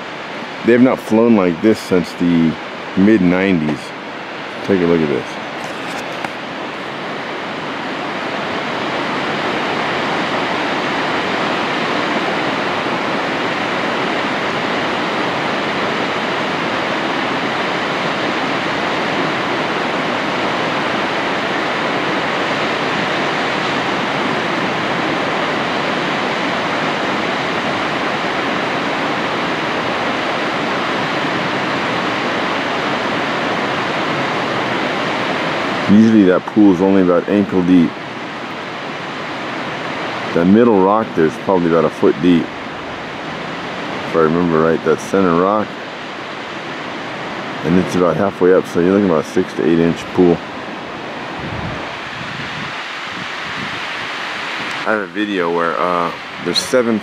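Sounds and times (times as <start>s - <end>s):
waterfall rushing and splashing: 0.0s - 57.0s.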